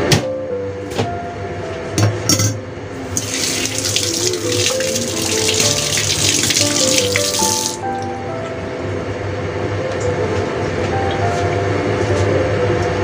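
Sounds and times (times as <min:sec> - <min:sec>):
background music stepping melody: 0:03.2 - 0:08.9, 0:09.8 - 0:13.0.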